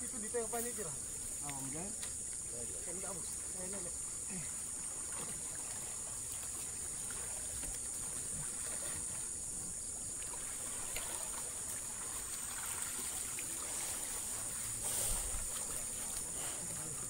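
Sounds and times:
high-pitched hiss: 0.0s - 17.0s
water sloshing while wading: 0.0s - 17.0s.

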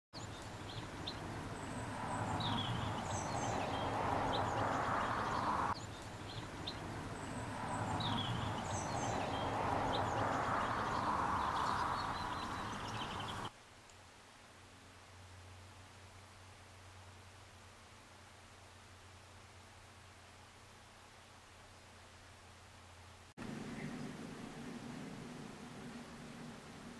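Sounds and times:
small birds chirping: 0.2s - 13.5s
steady rushing noise: 0.8s - 5.8s, 23.4s - 26.9s.

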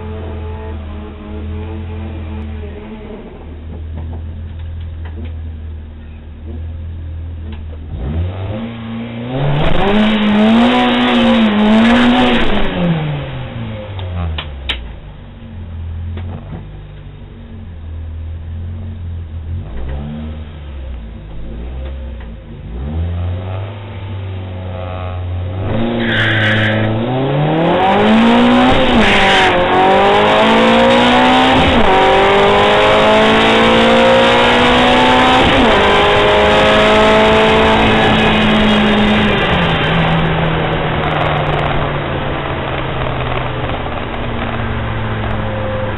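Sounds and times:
car engine revving through gears: 7.8s - 14.5s, 19.4s - 45.9s.

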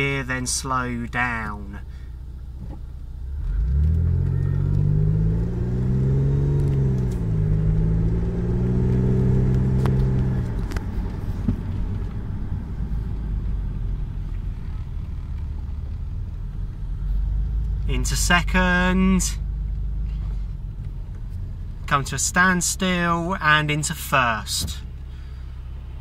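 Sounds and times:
road noise: 0.0s - 26.0s
car engine accelerating: 2.2s - 26.0s.

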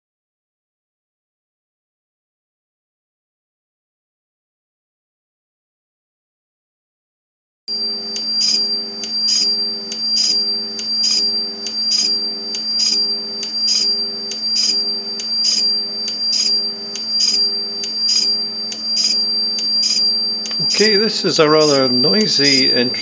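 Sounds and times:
oscillator high-pitched whine: 7.7s - 23.0s
two-pitch beeping pulses: 7.7s - 23.0s.

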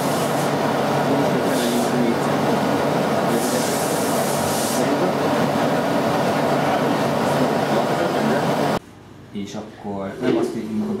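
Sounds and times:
hiss: 0.0s - 0.6s, 3.3s - 5.1s
machinery running: 0.0s - 8.8s.

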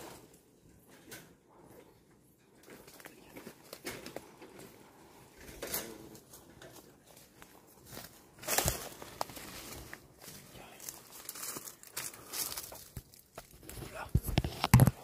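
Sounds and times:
rustling crunch: 5.5s - 15.0s.

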